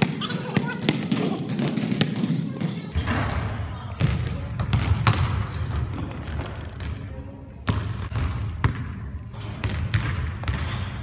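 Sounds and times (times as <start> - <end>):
basketball bouncing on wooden floor: 0.0 - 3.0, 4.0 - 7.0, 7.7 - 9.0, 9.6 - 10.9.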